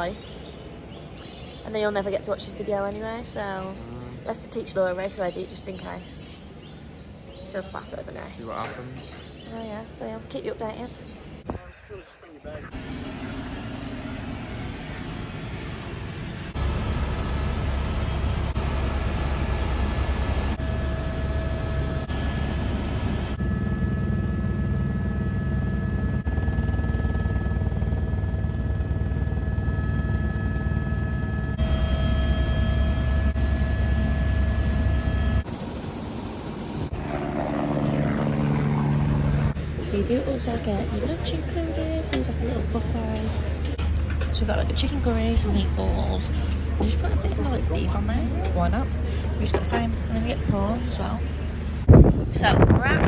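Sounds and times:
turbine whine: 12.5 - 41.4
helicopter rotor beat: 12.5 - 43.7.

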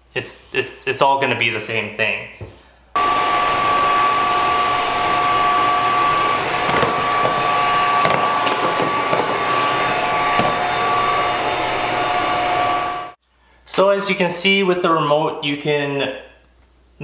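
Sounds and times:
robot vacuum suction whine: 3.0 - 13.2.

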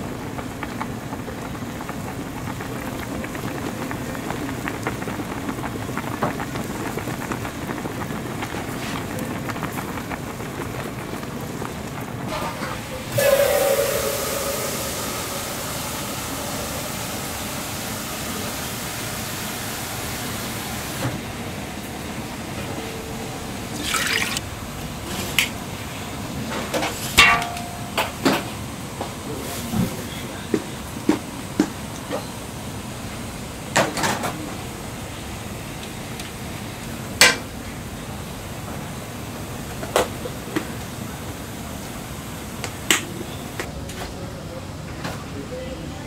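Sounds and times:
pot boiling and bubbling: 0.0 - 43.7
loud hiss: 12.7 - 21.6.

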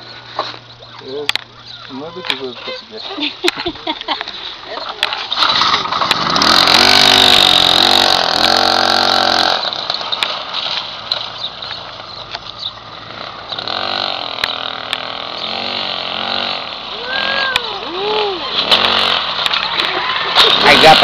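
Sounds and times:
moped engine revving: 5.1 - 21.0.

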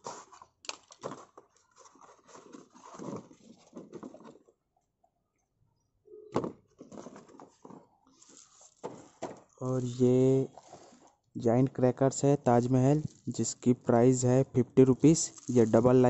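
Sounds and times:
hands sorting through paper: 0.0 - 4.5, 15.0 - 16.0.

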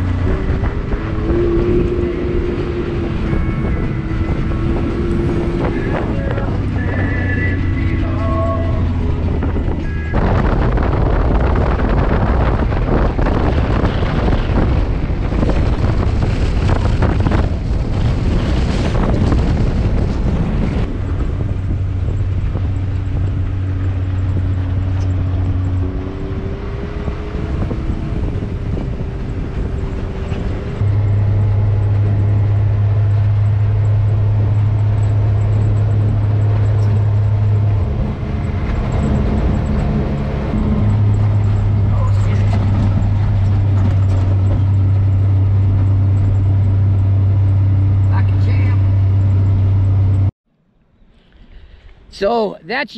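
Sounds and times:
engine droning: 0.0 - 52.2
wind and road noise: 0.0 - 52.9.

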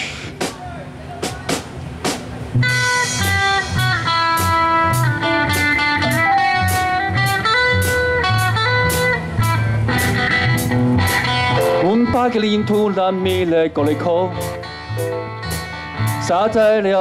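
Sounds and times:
drum kit beat: 0.0 - 16.3
bass guitar: 2.4 - 17.0
electric guitar melody: 2.5 - 17.0.

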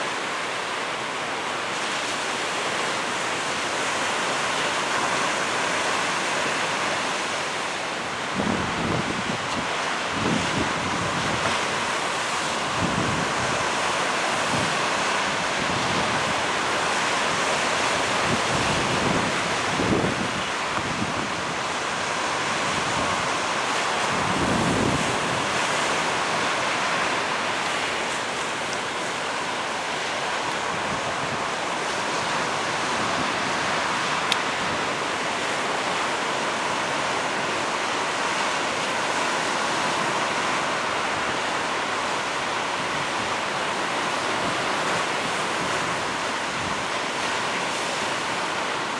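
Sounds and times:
waves breaking: 0.0 - 48.9
wind buffeting microphone: 18.0 - 23.3.

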